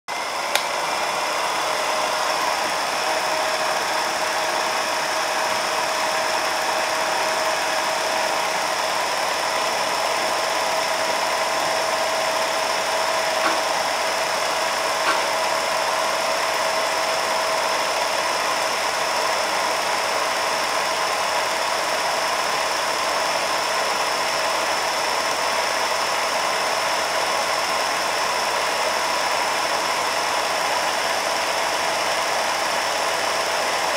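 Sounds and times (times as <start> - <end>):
film projector whirring: 0.1 - 33.9.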